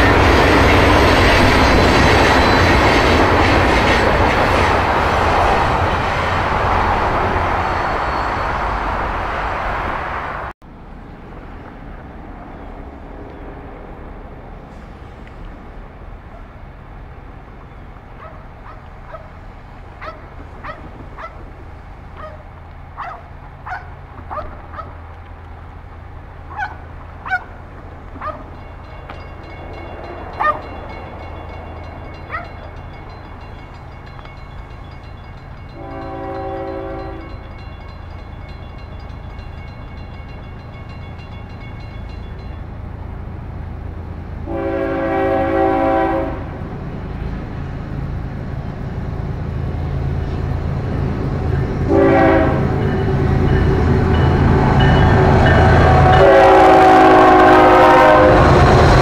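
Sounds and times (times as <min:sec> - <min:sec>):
low rumble of train: 0:00.0 - 0:59.0
locomotive air horn blasts: 0:35.8 - 0:37.3, 0:44.5 - 0:46.6, 0:51.9 - 0:52.9, 0:55.4 - 0:58.6.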